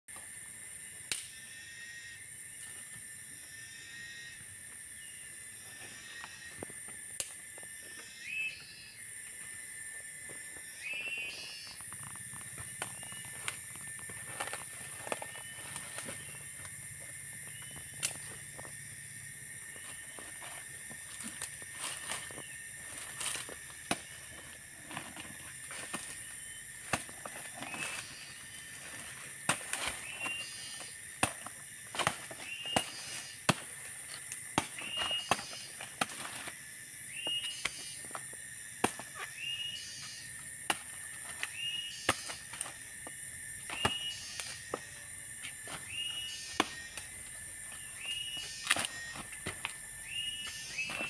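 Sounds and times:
cicadas droning: 0.1s - 51.0s
twigs snapping and leaves rustling: 10.3s - 18.8s, 19.6s - 36.6s, 40.6s - 51.0s.

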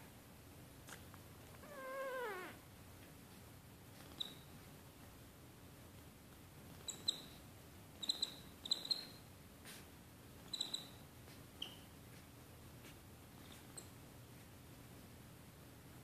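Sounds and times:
high-pitched animal squeaks: 8.0s - 9.2s, 10.5s - 11.0s.

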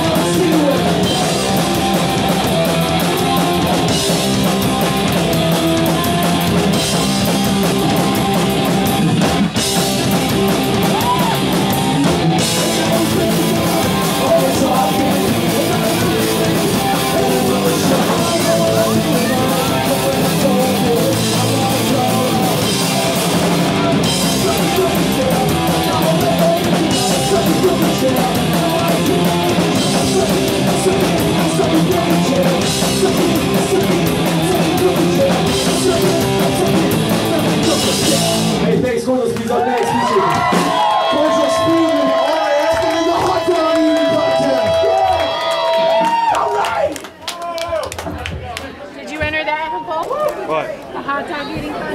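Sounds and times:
drum kit with crashing cymbals: 0.0s - 38.6s
distorted electric guitar: 0.0s - 38.9s
bass guitar: 0.0s - 46.4s.

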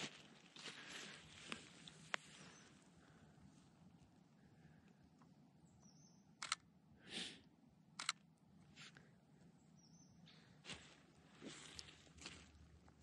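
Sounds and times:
soft rustle: 0.0s - 4.1s, 10.6s - 13.0s
camera shutter double click: 6.4s - 6.7s, 8.0s - 8.2s.

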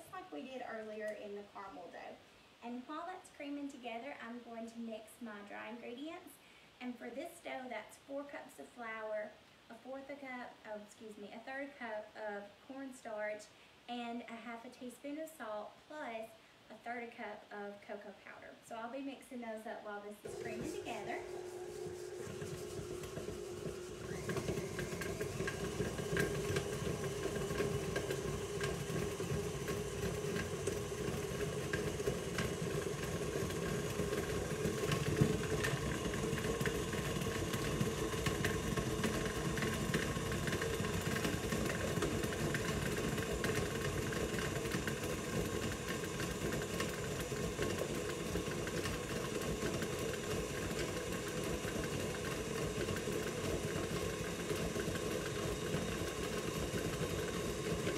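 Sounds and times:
stand mixer motor running: 20.3s - 57.9s.

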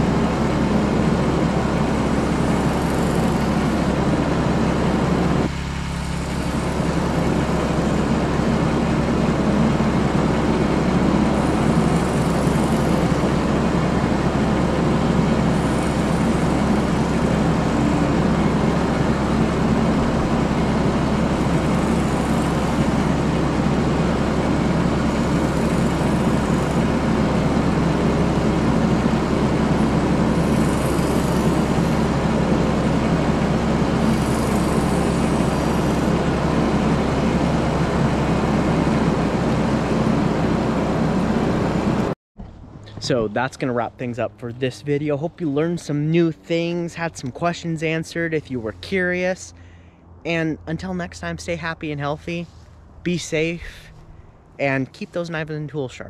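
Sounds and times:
portable generator running: 0.0s - 42.2s.

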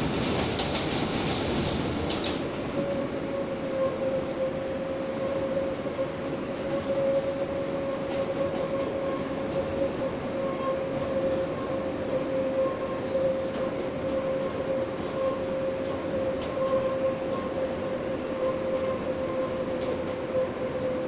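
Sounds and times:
subway car whine: 0.0s - 21.0s
wheels rumbling on rails: 0.0s - 21.0s.

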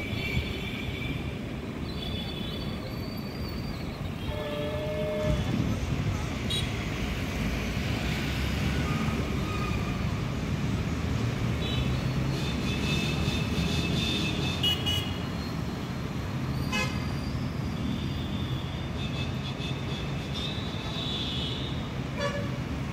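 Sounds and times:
vehicle horns honking: 4.2s - 5.7s, 13.8s - 15.2s, 18.0s - 22.6s.

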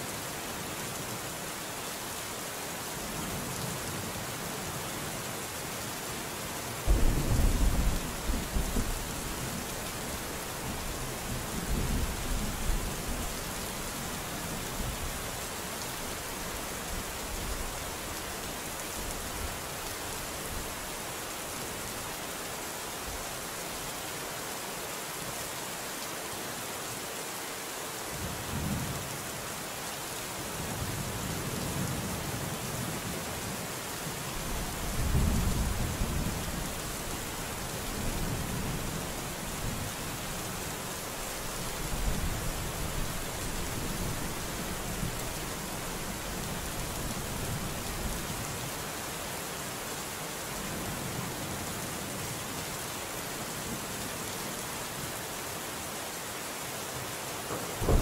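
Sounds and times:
soft rain hiss: 0.0s - 58.0s
thunder rumbling: 6.9s - 10.3s, 57.5s - 58.0s.

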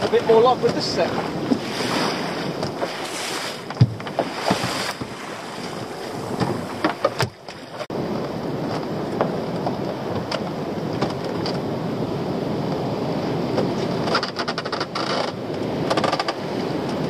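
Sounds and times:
water slapping against boat hull: 0.0s - 11.8s, 12.7s - 17.0s
wind buffeting microphone: 0.0s - 17.0s
sharp knocks: 3.7s - 5.2s.

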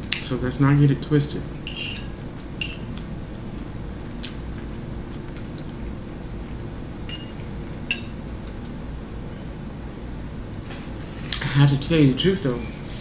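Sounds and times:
fork clinking on ceramic plate: 1.7s - 2.9s, 7.1s - 8.1s
soft eating sounds: 2.2s - 11.5s.

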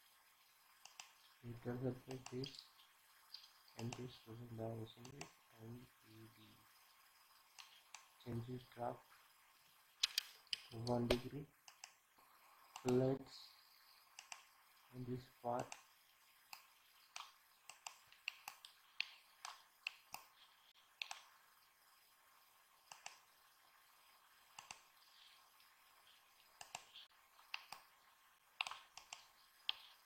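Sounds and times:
computer mouse buttons clicking: 0.8s - 1.1s, 3.3s - 4.1s, 10.0s - 12.0s, 12.7s - 13.1s, 14.1s - 14.5s, 16.5s - 20.3s, 21.0s - 21.3s, 22.9s - 23.2s, 24.6s - 24.9s, 26.6s - 27.9s, 28.6s - 30.0s.

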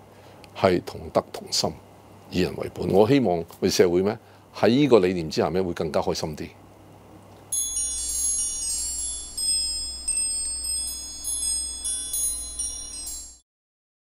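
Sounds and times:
low steady hum: 0.0s - 13.4s
high bright chimes ringing: 7.5s - 13.4s.

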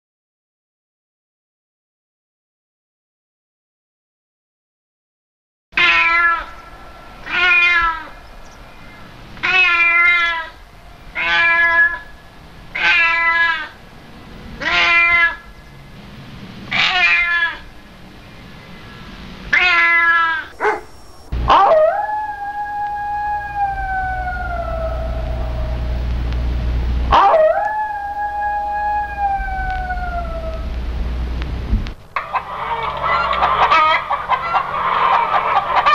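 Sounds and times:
cat meowing: 5.8s - 6.6s, 7.2s - 8.2s, 9.4s - 12.1s, 12.7s - 13.8s, 14.6s - 15.4s, 16.7s - 17.6s, 19.5s - 21.6s, 29.1s - 30.8s
cat howling: 5.8s - 13.9s, 14.6s - 15.5s, 16.7s - 17.6s, 19.5s - 26.2s, 27.1s - 30.8s
low rumble: 6.2s - 13.0s, 20.5s - 32.0s.

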